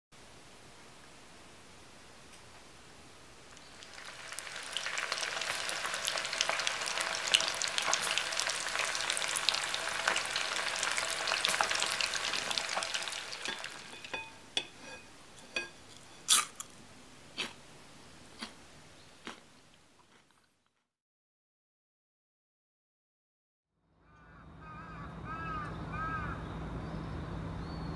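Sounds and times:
fish deep-frying in oil: 3.5 - 16.5.

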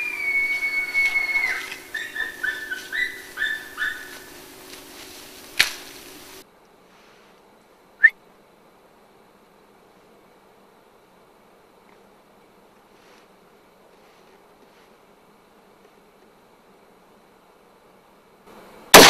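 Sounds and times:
elk bugling: 0.0 - 6.4.

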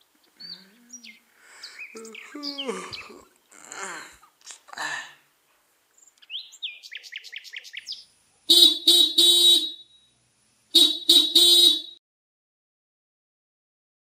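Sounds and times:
bird chirping: 0.0 - 3.6, 5.9 - 10.2
vehicle horn honking: 8.5 - 10.1, 10.7 - 12.0.

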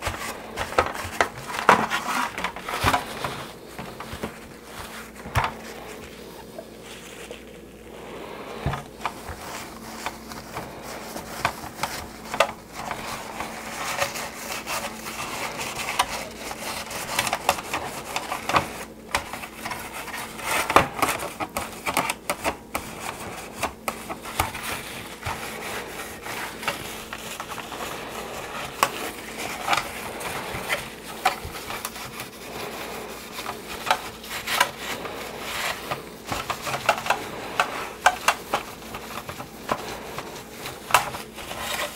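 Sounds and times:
rag scrubbing plastic: 0.0 - 41.9.

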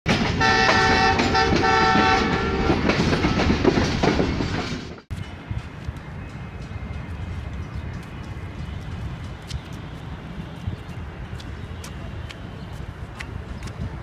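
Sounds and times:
train rumbling past: 0.1 - 14.0
diesel locomotive horn blasts: 0.4 - 2.8.

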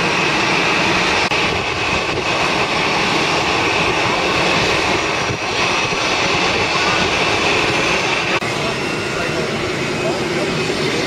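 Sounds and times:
jet engines whining: 0.0 - 11.0.

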